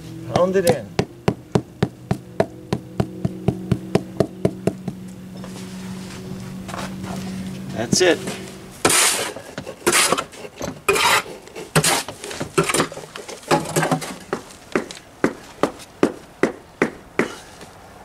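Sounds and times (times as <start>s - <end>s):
sharp tapping on stone: 0.3s - 5.1s, 13.5s - 17.4s
tool scraping mortar: 8.3s - 14.2s.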